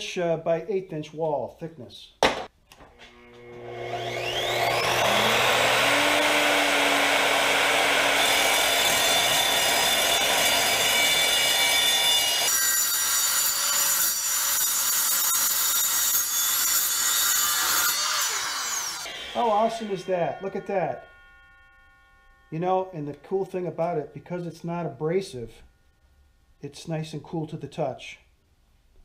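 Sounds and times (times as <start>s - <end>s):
saw motor spinning up: 2.9s - 11.8s, 17.6s - 26.5s
saw blade cutting metal pipe: 3.1s - 25.8s.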